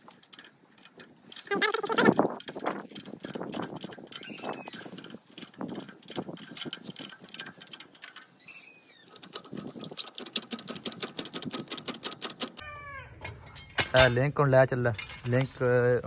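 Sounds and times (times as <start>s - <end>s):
ratchet wrench clicking: 0.0s - 8.4s, 9.1s - 12.6s
metal tool clinks: 13.2s - 15.6s.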